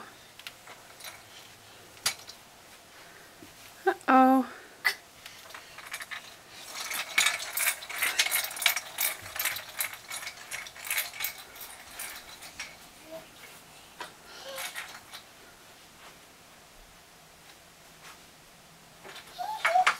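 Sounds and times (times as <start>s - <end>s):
toy wheels clattering on carpet: 0.4s - 2.4s, 5.2s - 15.3s, 19.0s - 19.9s.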